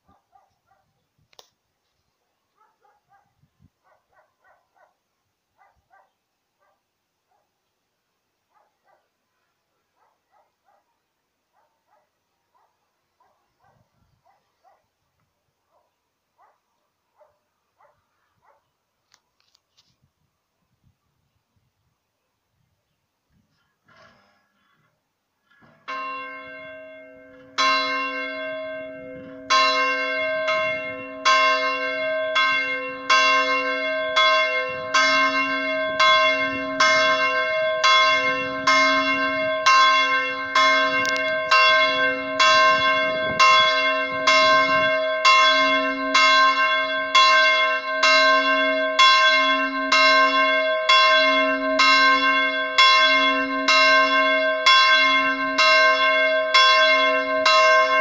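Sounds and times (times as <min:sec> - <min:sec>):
church bell ringing: 0:25.7 - 0:58.0.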